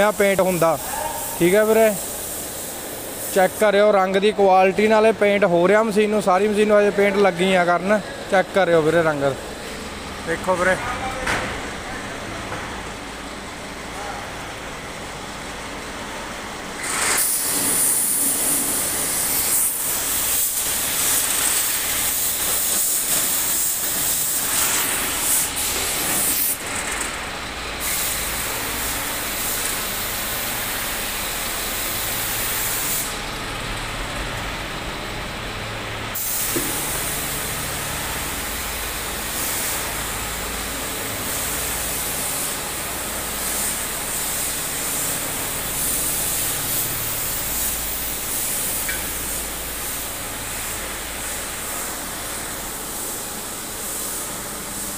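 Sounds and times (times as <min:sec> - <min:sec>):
paint spray gun hissing: 0:00.0 - 0:03.8, 0:16.8 - 0:26.6, 0:27.8 - 0:33.2, 0:36.2 - 0:54.9.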